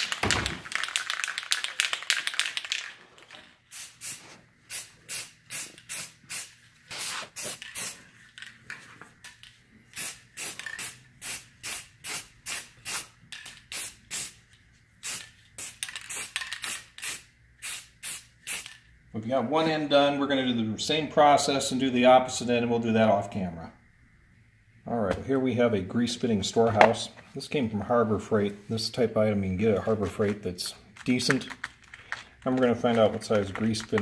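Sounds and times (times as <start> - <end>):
spray paint can hissing bursts: 3.7 - 8.1, 9.9 - 18.9.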